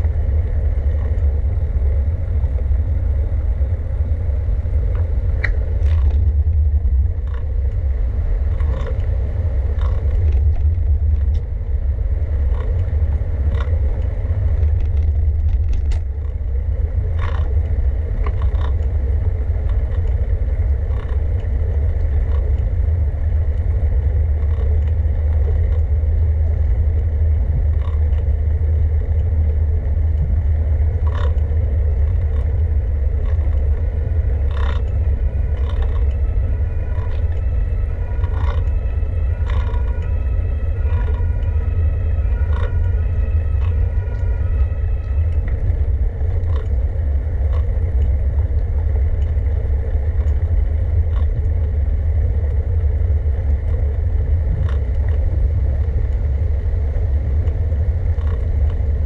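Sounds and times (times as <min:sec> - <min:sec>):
wind and road rumble: 0:00.0 - 0:59.0
bicycle clicks and rattles: 0:04.9 - 0:07.8, 0:08.5 - 0:09.1, 0:09.7 - 0:11.5, 0:12.4 - 0:22.8, 0:23.5 - 0:25.9, 0:26.6 - 0:28.3, 0:31.0 - 0:37.5, 0:38.2 - 0:40.1, 0:42.5 - 0:43.0, 0:45.3 - 0:46.8, 0:47.4 - 0:51.8, 0:52.4 - 0:56.3, 0:57.4 - 0:58.8.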